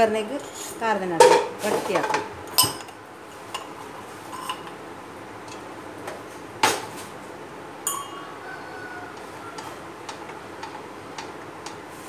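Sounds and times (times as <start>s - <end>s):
metal pot clinking on cooktop: 7.9s - 8.6s.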